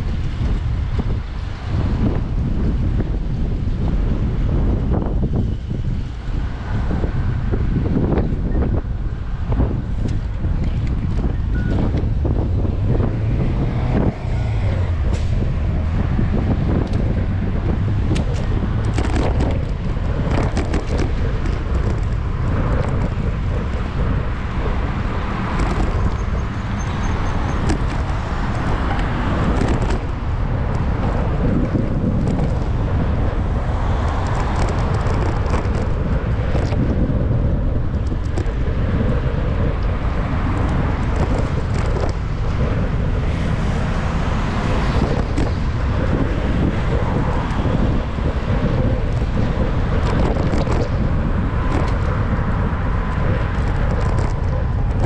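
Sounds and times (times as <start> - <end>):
road traffic: 0.0 - 55.0
wind rumbling on microphone: 0.0 - 55.0.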